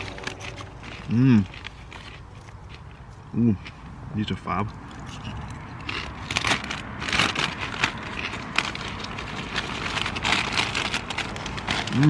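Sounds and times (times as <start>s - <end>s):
crisps being chewed: 0.0s - 12.0s.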